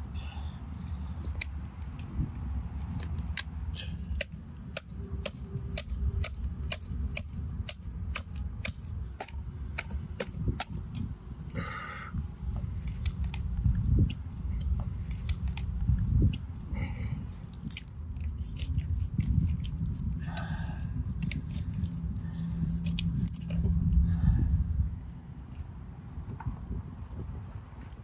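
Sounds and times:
knife crunching through fish bone: 4.1s - 10.8s, 17.4s - 20.2s, 21.1s - 23.7s.

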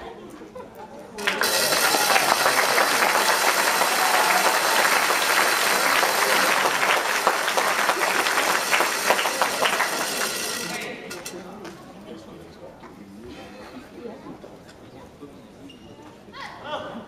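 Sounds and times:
crowd applauding: 1.2s - 11.2s.

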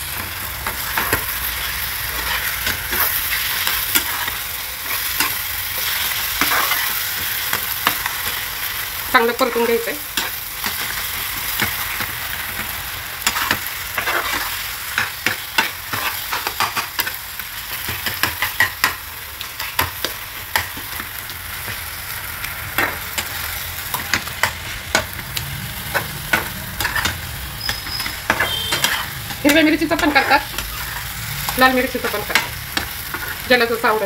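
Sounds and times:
food sizzling in a frying pan: 0.0s - 34.0s
spatula scraping a pan: 0.6s - 8.4s, 9.4s - 17.2s, 25.8s - 33.5s.

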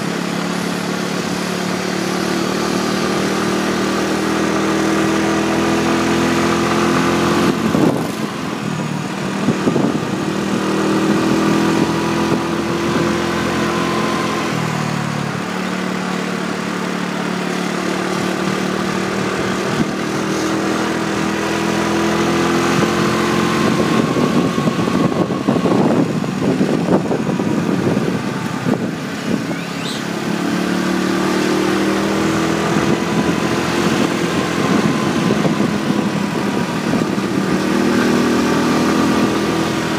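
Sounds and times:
motorbike engine running: 0.0s - 39.9s
wind buffeting microphone: 4.5s - 13.6s, 18.2s - 30.5s, 31.4s - 39.9s.

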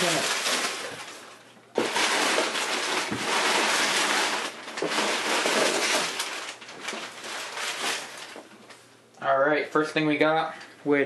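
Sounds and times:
packing paper crackling and rustling: 0.0s - 8.8s.

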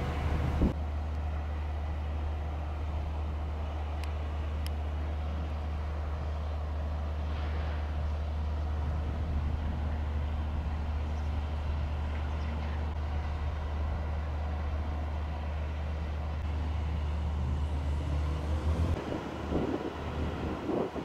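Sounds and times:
wind buffeting microphone: 0.0s - 0.8s, 7.9s - 14.2s, 19.0s - 21.0s
low engine rumble: 0.0s - 21.0s.

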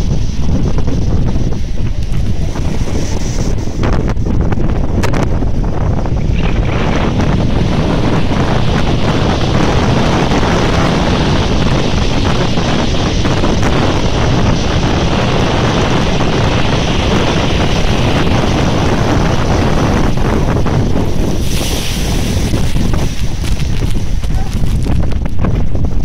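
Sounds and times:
wind buffeting microphone: 0.0s - 26.0s
waves breaking on shingle beach: 15.4s - 25.3s.

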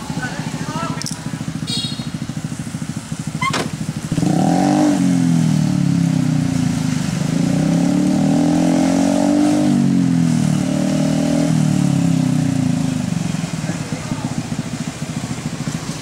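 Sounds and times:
small engine running: 12.9s - 16.0s.

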